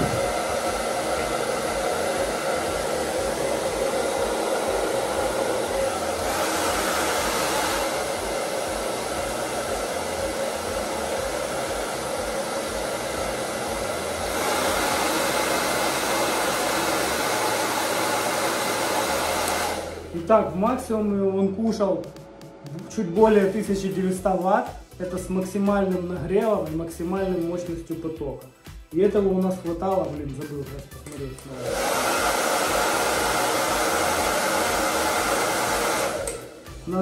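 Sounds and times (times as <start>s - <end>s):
hair dryer blowing: 0.0s - 21.0s, 31.1s - 37.0s.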